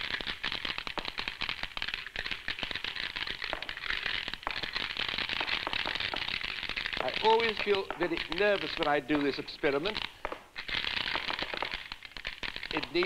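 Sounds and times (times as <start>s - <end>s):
glass marbles clattering: 5.3s - 10.4s, 11.0s - 11.8s, 12.7s - 13.0s.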